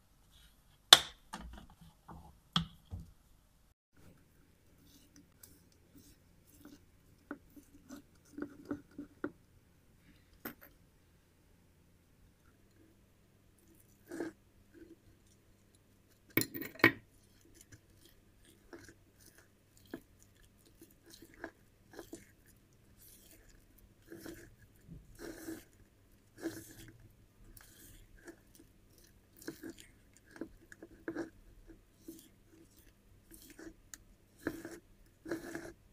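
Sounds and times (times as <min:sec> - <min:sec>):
utensil scraping a ceramic bowl: 0:04.8 - 0:09.4, 0:13.8 - 0:15.3, 0:17.0 - 0:35.9
wet batter squelching: 0:17.0 - 0:35.9.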